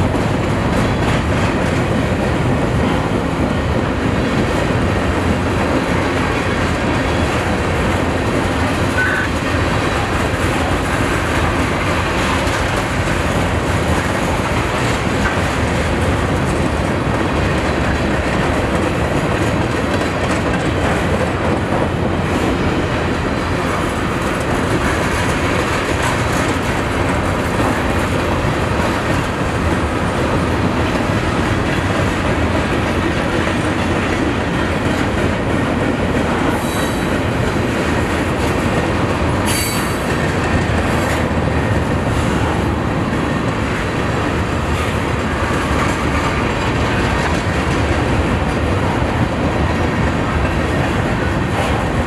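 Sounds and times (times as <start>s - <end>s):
train wheels rumbling on rails: 0.0s - 52.0s
wheels clacking over rail joints: 0.0s - 52.0s
train wheel squeals: 36.5s - 37.2s, 39.4s - 40.2s.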